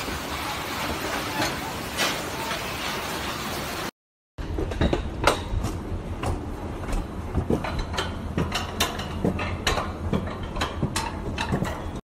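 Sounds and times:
sharp clacks and knocks: 4.4 - 12.0.

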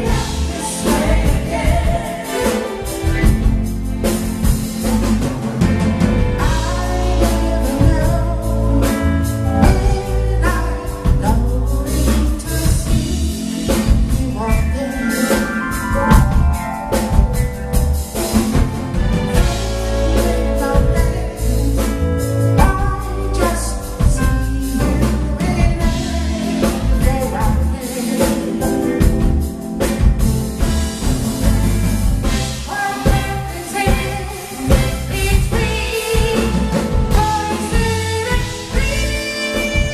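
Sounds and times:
backing vocalists: 0.0 - 4.1
male lead singer: 0.0 - 4.2, 5.7 - 16.5, 19.4 - 29.4, 32.3 - 39.9
live band playing: 0.0 - 39.9
steady drum beat: 0.0 - 39.9.

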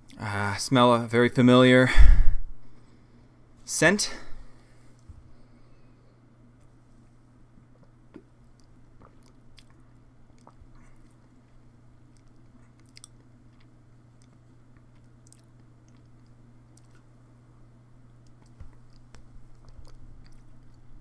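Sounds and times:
steady low hum: 0.0 - 21.0
mouth clicks and lip smacks: 7.8 - 17.1.

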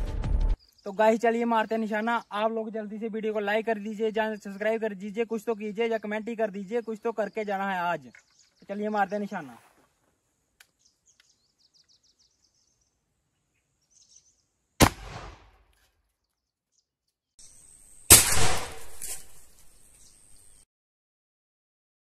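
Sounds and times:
louder bang with noisy tail: 14.8 - 15.5, 18.1 - 19.1
gunshot bang: 14.8 - 15.6, 18.1 - 19.3.

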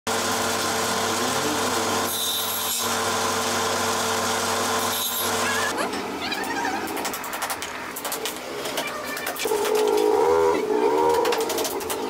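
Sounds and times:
table saw cutting wood: 0.1 - 5.8.

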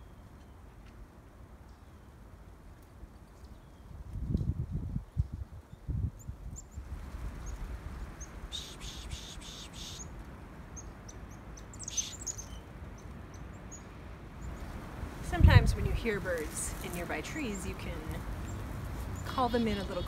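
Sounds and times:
songbirds chirping: 0.0 - 2.3, 2.9 - 20.0
low steady background noise: 0.0 - 20.0
bird trilling: 8.2 - 10.1, 10.8 - 12.7.

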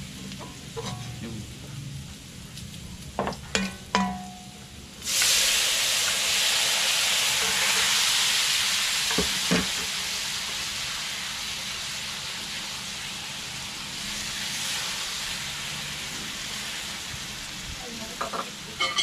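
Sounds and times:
meat sizzling in wok: 0.0 - 19.0
metal ladle clinking on wok: 0.4 - 1.2, 3.5 - 4.5, 18.2 - 19.0.

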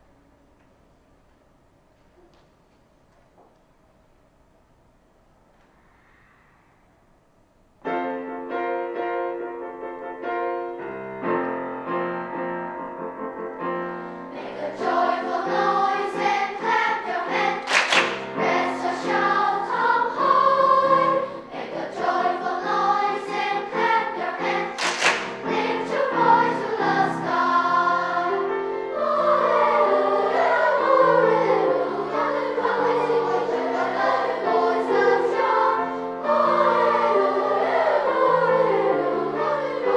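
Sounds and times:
piano chords: 7.0 - 39.9
children's choir singing: 14.1 - 39.9.

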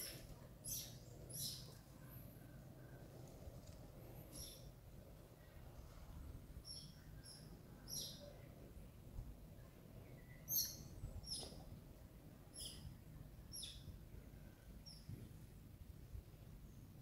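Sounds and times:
bird chirping: 0.0 - 1.8, 4.3 - 4.7, 6.6 - 8.5, 10.1 - 11.6, 12.5 - 12.9, 13.5 - 13.9
low outdoor rumble: 0.0 - 17.0.

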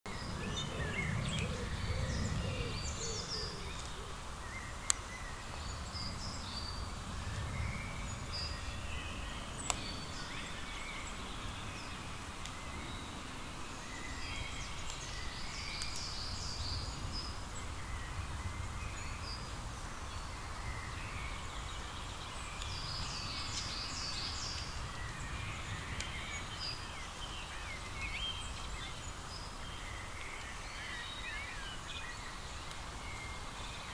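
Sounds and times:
steady low rumble: 0.1 - 3.9
birds calling and chirping: 0.1 - 33.9.

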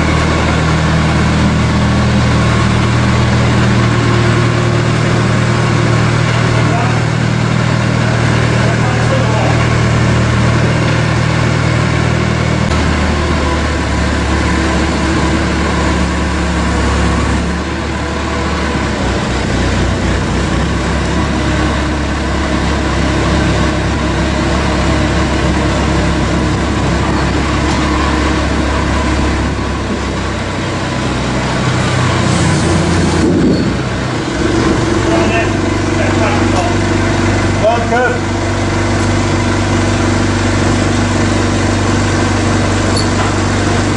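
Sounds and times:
farm loader engine running: 0.0 - 43.9.

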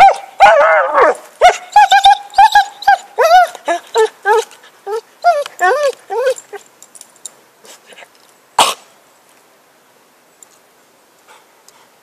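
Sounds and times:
dog coughing: 8.6 - 8.8.

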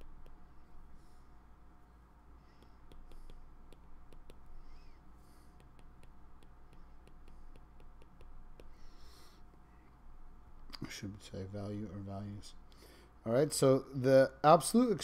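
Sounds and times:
stylus tapping on glass screen: 2.6 - 4.5, 5.6 - 8.8.

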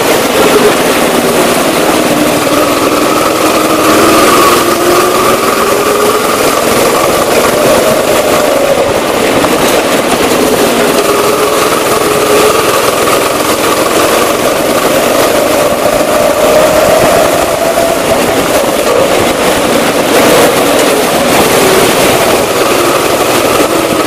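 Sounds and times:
go-kart engine running: 0.0 - 24.0.

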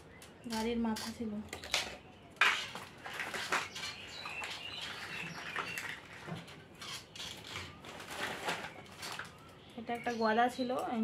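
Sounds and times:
plastic toys clattering: 0.5 - 10.2.

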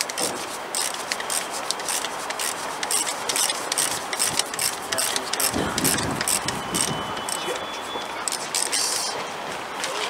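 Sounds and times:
ratchet spanner rasping: 0.0 - 7.5, 8.2 - 9.1.

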